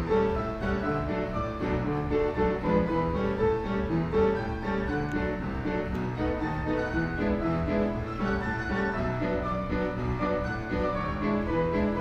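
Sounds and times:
automatic piano playing a tune: 0:00.0 - 0:12.0.

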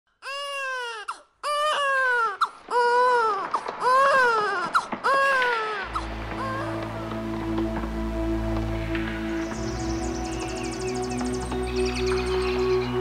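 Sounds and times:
baby crying: 0:00.2 - 0:06.8
background music with low notes: 0:05.8 - 0:13.0.

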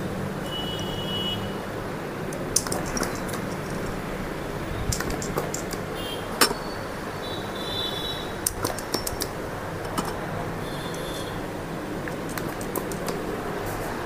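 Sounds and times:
hand pump clicking: 0:02.3 - 0:04.0, 0:04.8 - 0:06.7, 0:08.4 - 0:11.3, 0:12.1 - 0:13.4.

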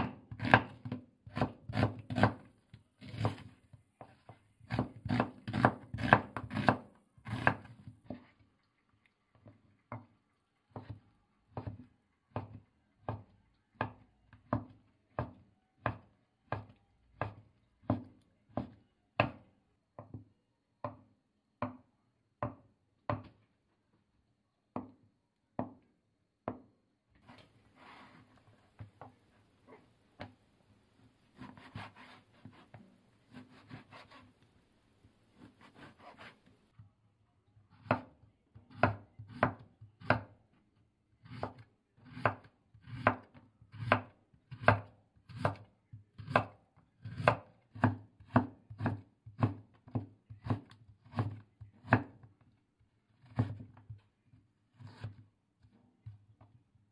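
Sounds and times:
knife cutting on chopping board: 0:03.0 - 0:03.5, 0:31.4 - 0:34.3, 0:35.4 - 0:36.5, 0:54.8 - 0:55.2.

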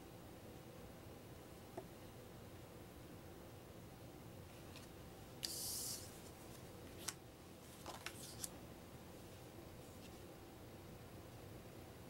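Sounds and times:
card sliding over card: 0:04.8 - 0:08.5.

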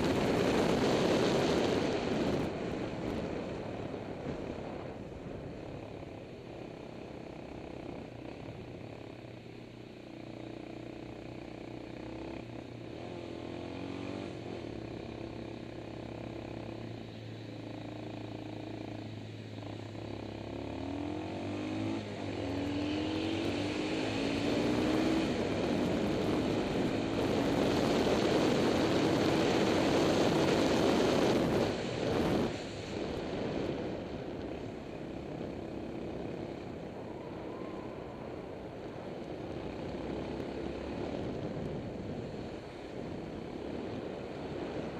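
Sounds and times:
motorcycle engine revving: 0:10.0 - 0:44.9.

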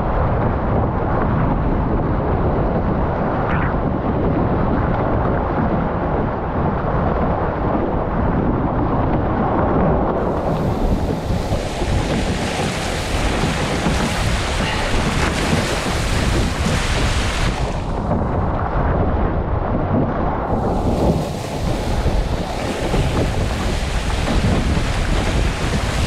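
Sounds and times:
wind buffeting microphone: 0:00.0 - 0:26.0
water rushing past hulls: 0:10.0 - 0:18.5, 0:20.4 - 0:26.0.

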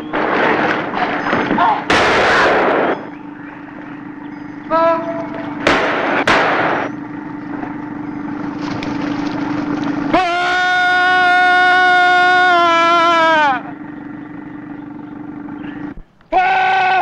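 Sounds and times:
sharp cracks: 0:00.0 - 0:04.2, 0:05.2 - 0:08.0
steady low hum: 0:00.0 - 0:17.0
man screaming: 0:10.1 - 0:13.7, 0:16.3 - 0:17.0.

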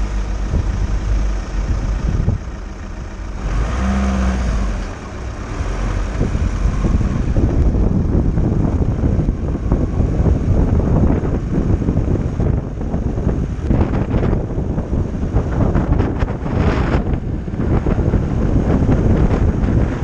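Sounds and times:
van driving road noise: 0:00.0 - 0:20.0
wind buffeting microphone: 0:00.0 - 0:20.0.

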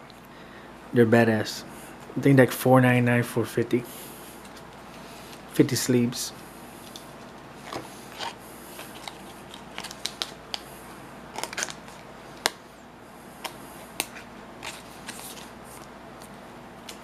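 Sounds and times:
plastic sleeves rustling: 0:06.8 - 0:10.7, 0:11.3 - 0:12.6, 0:13.4 - 0:17.0.

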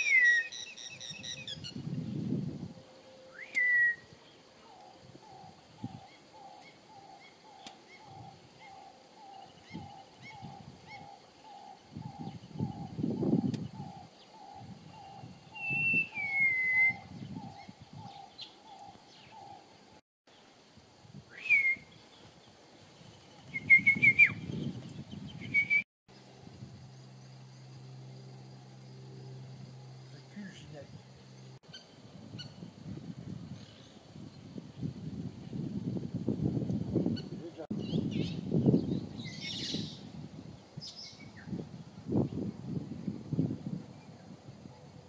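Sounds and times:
bird falling whistles: 0:03.3 - 0:04.1, 0:15.6 - 0:17.1.

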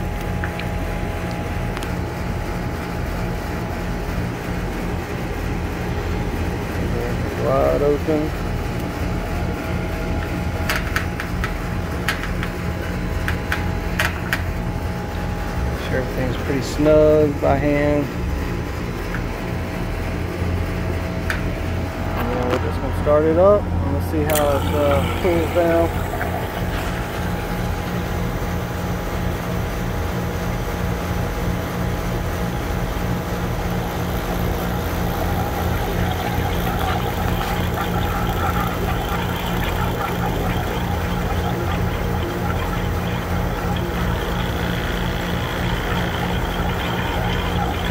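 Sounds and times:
vacuum pump motor humming: 0:00.0 - 0:47.9
valve knobs clicking: 0:10.1 - 0:14.6, 0:22.2 - 0:28.2, 0:33.8 - 0:47.9.

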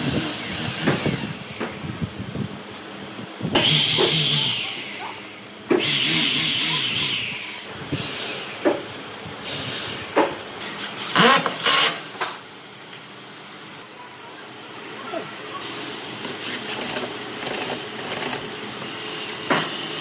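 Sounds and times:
power tool cutting wood: 0:00.0 - 0:01.5, 0:03.6 - 0:05.1, 0:05.7 - 0:08.8, 0:09.4 - 0:13.8, 0:16.2 - 0:20.0.

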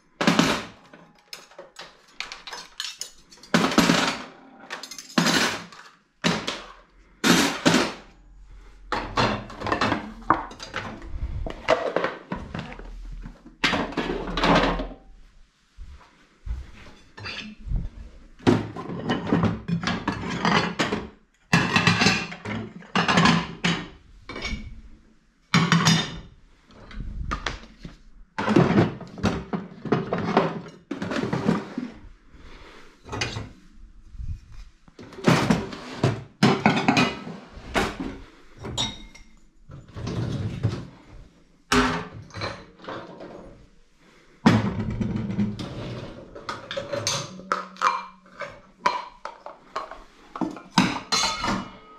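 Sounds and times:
plates clattering: 0:00.2 - 0:08.1, 0:08.9 - 0:12.7, 0:18.4 - 0:24.8, 0:35.0 - 0:39.4, 0:44.5 - 0:51.9
dishwasher racks rattling: 0:50.7 - 0:51.9.

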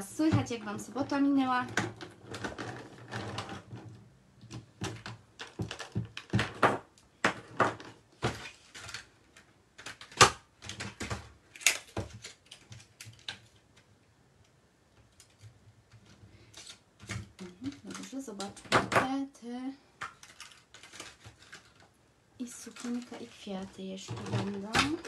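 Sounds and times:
plastic pens clicking on desk: 0:16.5 - 0:18.8.

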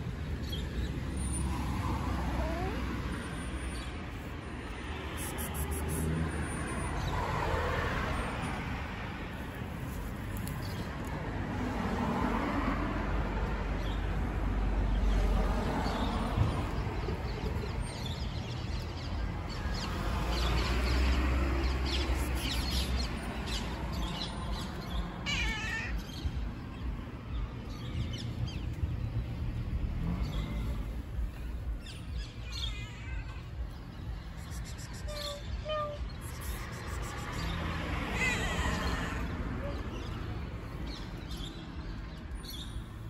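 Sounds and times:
cats meowing: 0:02.3 - 0:03.0, 0:25.2 - 0:26.4, 0:32.4 - 0:34.2, 0:35.0 - 0:36.5, 0:37.4 - 0:40.3.

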